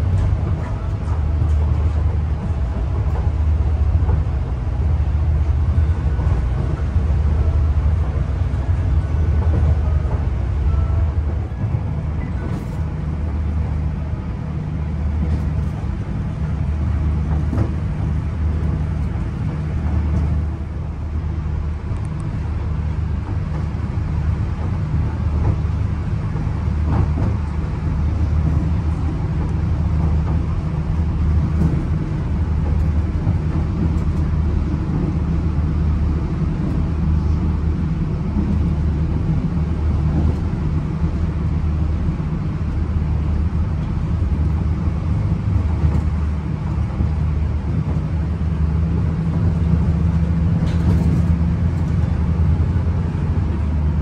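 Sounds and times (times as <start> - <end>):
train carriage rumble: 0.0 - 54.0.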